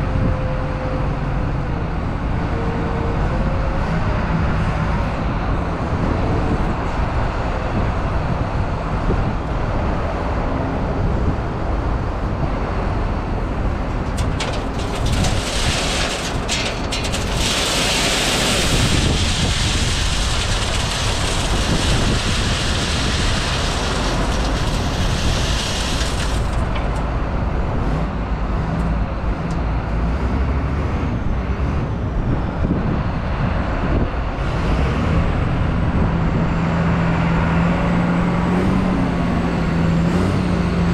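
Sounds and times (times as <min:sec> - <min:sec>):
diesel engines running: 0:00.0 - 0:40.9
salt pouring with rushing hiss: 0:17.2 - 0:26.6.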